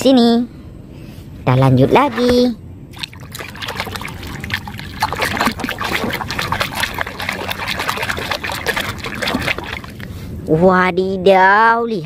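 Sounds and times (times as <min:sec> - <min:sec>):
water splashing in plastic basin: 0:02.9 - 0:10.1
water dripping: 0:03.0 - 0:10.1.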